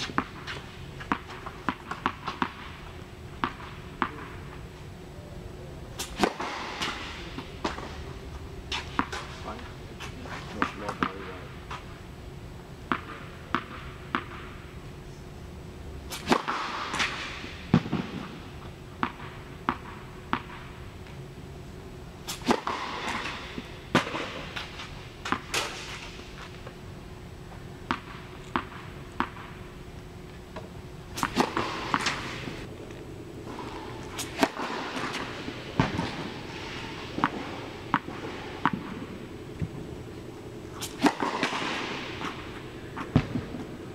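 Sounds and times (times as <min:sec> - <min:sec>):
tennis ball struck by racket: 0:00.0 - 0:02.8, 0:03.4 - 0:04.3, 0:06.0 - 0:08.0, 0:08.7 - 0:09.4, 0:12.9 - 0:14.6, 0:16.1 - 0:18.4, 0:19.0 - 0:20.6, 0:22.3 - 0:26.3, 0:27.9 - 0:29.6, 0:30.6 - 0:32.6, 0:33.4 - 0:39.8, 0:40.7 - 0:43.8
tennis ball bouncing: 0:00.0 - 0:04.3, 0:06.0 - 0:08.0, 0:08.7 - 0:09.4, 0:12.9 - 0:14.6, 0:16.2 - 0:18.4, 0:19.0 - 0:20.7, 0:22.4 - 0:26.2, 0:27.8 - 0:29.6, 0:30.6 - 0:43.9
steady hum: 0:00.0 - 0:43.9.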